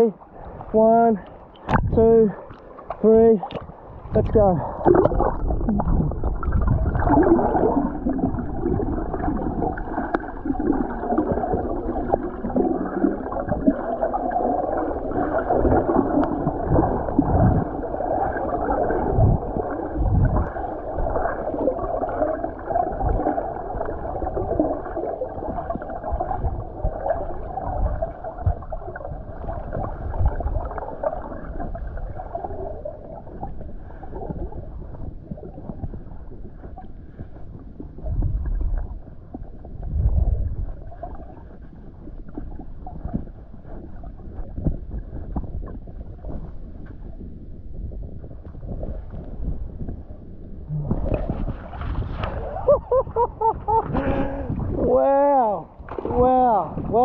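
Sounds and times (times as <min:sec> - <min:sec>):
underwater churning and gurgling: 0:00.0 - 0:57.0
dull low thumps: 0:01.6 - 0:02.4, 0:03.0 - 0:09.6, 0:44.5 - 0:55.9
wavering hollow tones: 0:50.6 - 0:53.7.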